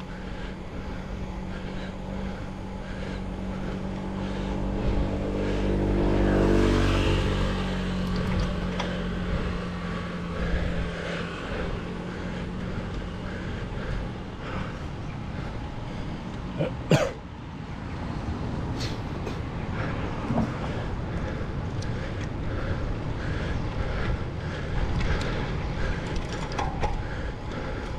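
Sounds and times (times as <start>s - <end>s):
vehicle engine passing by: 0.0s - 14.8s
wind and road noise: 0.0s - 27.9s.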